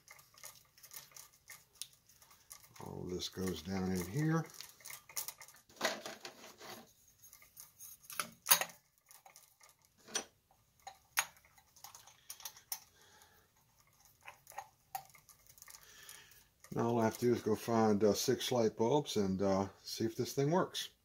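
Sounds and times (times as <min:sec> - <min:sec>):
wire rustling: 0:00.0 - 0:18.3.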